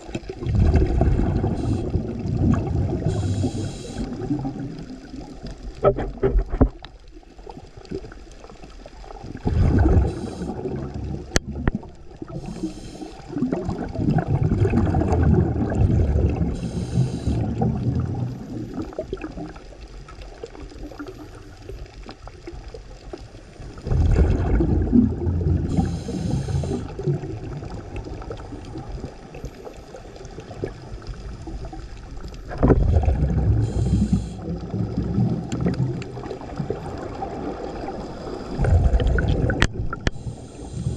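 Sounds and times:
bubbling exhalations: 0.3 - 6.6, 9.4 - 19.5, 23.8 - 28.6, 32.5 - 40.9
diver breathing through regulator: 1.3 - 2.1, 2.9 - 4.3, 9.6 - 10.8, 12.3 - 13.4, 16.5 - 17.6, 25.6 - 27.0, 33.5 - 34.7, 37.9 - 39.2, 40.0 - 40.9.

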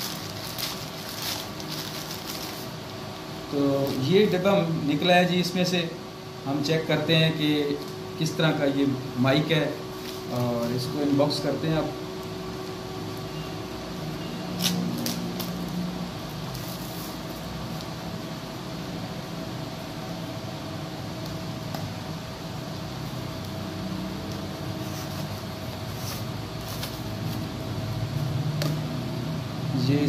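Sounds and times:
packaging rustling and clicking: 0.0 - 2.8
steady background hum: 0.0 - 30.0.

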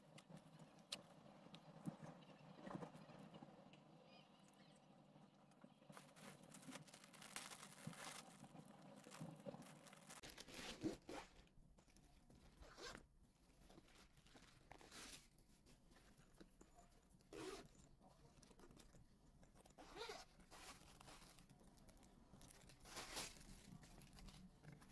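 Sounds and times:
packaging handling: 5.9 - 11.1.

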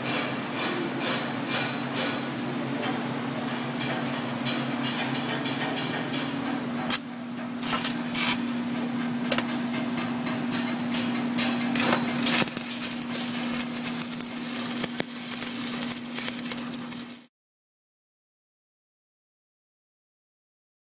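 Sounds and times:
welding arc crackling and popping: 6.9 - 8.7, 9.3 - 17.3.

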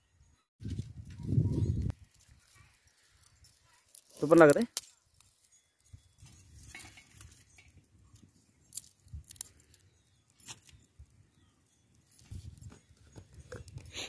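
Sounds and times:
fire crackling: 1.9 - 14.0
twigs clicking: 3.5 - 5.5, 8.7 - 11.1.

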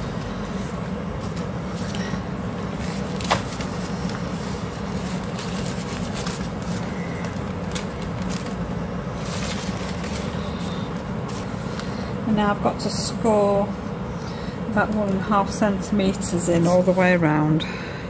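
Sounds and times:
steady low hum: 0.0 - 18.0
paper rustling and crinkling: 2.7 - 12.0.

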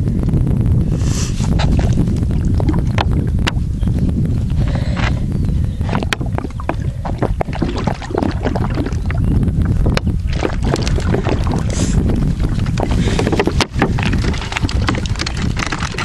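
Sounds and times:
wind buffeting microphone: 0.0 - 16.0
water splashing and sloshing: 1.4 - 3.6, 5.8 - 16.0.

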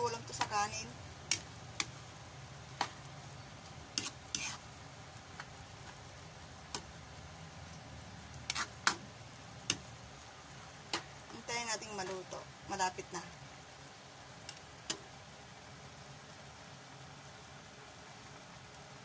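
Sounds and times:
noodles sizzling in a pan: 0.0 - 19.0
metal spatula scraping a pan: 3.9 - 4.7, 8.4 - 9.0.

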